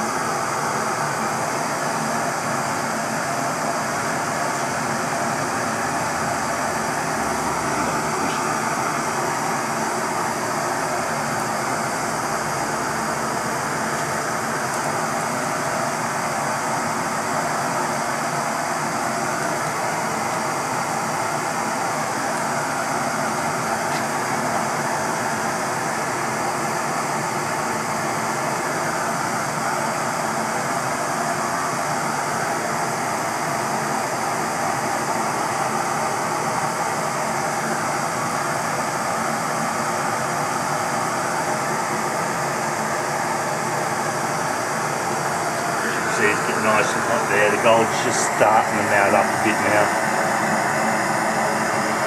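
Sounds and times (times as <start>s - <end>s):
gas torches roaring: 0.2s - 26.0s, 44.4s - 52.0s.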